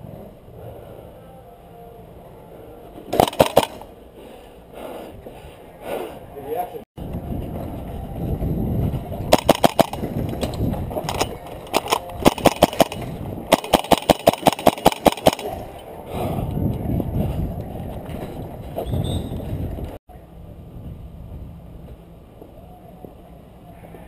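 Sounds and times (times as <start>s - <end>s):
airsoft rifle firing: 3.1s - 3.9s, 9.3s - 10.1s, 11.1s - 15.7s.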